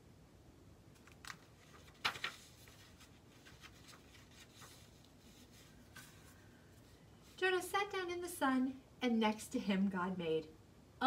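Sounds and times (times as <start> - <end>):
book pages rustling: 1.0 - 7.4.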